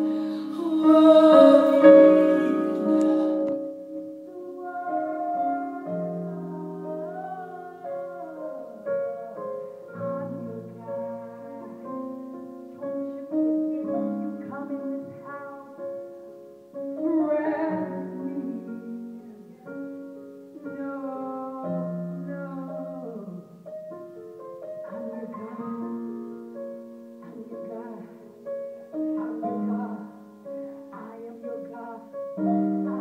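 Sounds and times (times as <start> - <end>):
woman singing: 0.0 - 12.2, 13.2 - 16.0, 16.9 - 20.0, 20.6 - 23.5, 24.8 - 26.2, 27.2 - 28.4, 29.0 - 33.0
electronic keyboard chords: 0.0 - 15.9.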